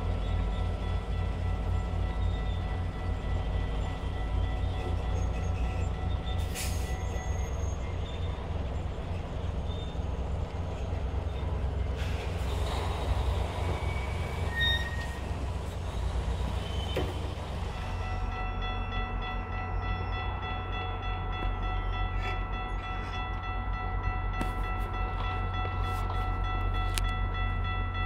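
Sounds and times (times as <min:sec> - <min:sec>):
train rolling rumble: 0:00.0 - 0:28.0
high-pitched wheel squeal: 0:13.6 - 0:15.3.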